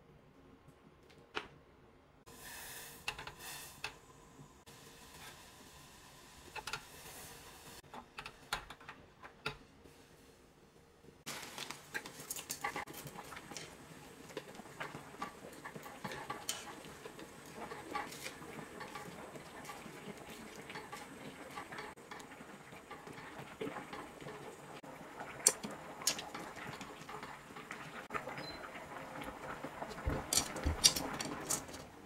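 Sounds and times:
water boiling and bubbling: 0:11.2 - 0:32.0.

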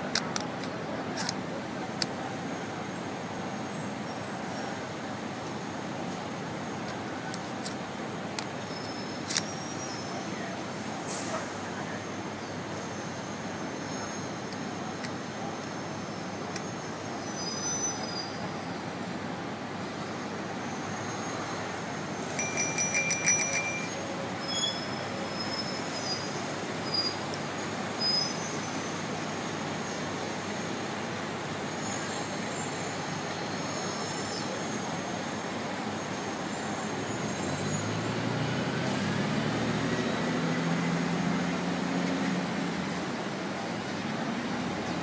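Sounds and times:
steady background noise: 0:00.0 - 0:45.0
bicycle bell ringing: 0:22.4 - 0:25.0.

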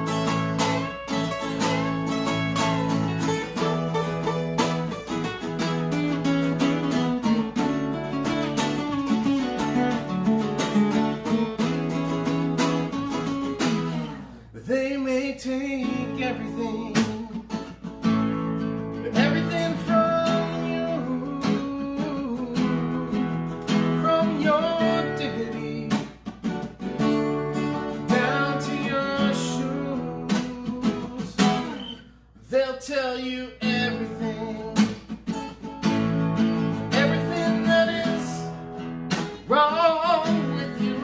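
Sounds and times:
acoustic guitar strumming: 0:00.0 - 0:41.0
person singing: 0:14.5 - 0:17.6, 0:19.0 - 0:26.2, 0:27.2 - 0:35.1, 0:36.7 - 0:38.7, 0:39.4 - 0:41.0.

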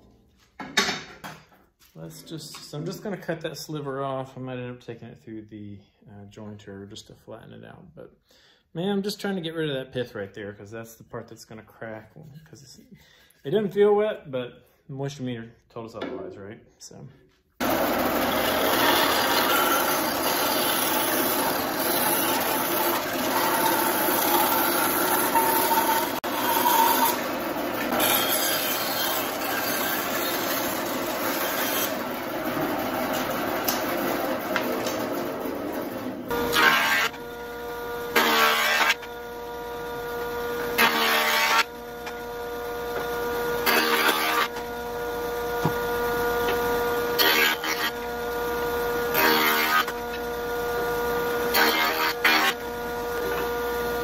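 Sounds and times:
bandsaw cutting log: 0:17.6 - 0:54.0
jointer motor humming: 0:17.6 - 0:54.0.

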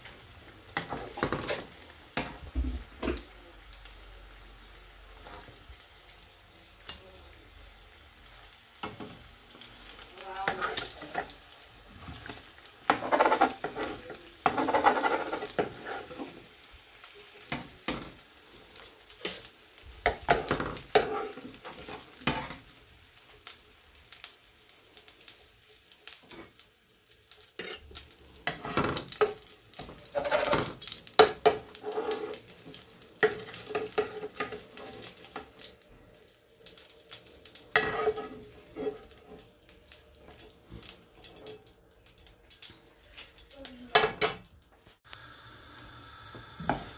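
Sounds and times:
eggs sizzling in oil: 0:00.0 - 0:46.9
metal ladle scraping pan: 0:12.9 - 0:16.3, 0:20.3 - 0:22.6, 0:28.5 - 0:32.5, 0:37.7 - 0:39.4.

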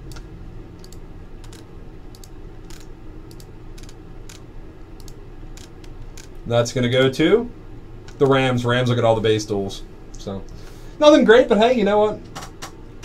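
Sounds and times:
mouse and keyboard clicks: 0:00.0 - 0:04.4
low steady hum: 0:00.0 - 0:13.0.

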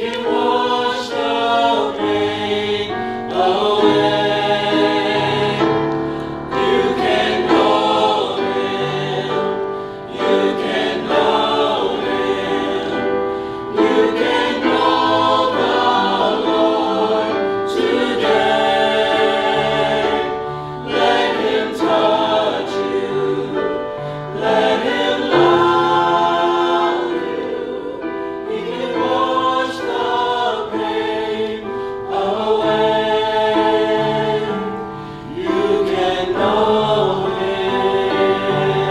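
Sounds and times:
mixed choir singing in harmony: 0:00.0 - 0:38.9.

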